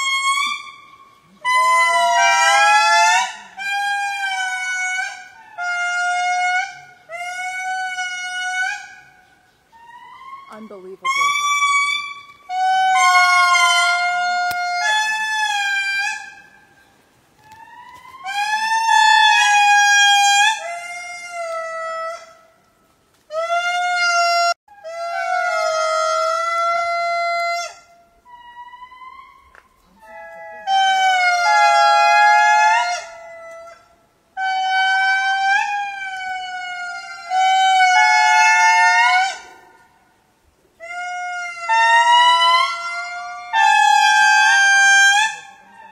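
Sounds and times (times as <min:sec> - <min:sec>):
lemur wailing calls: 0:00.0 - 0:16.8, 0:17.4 - 0:22.3.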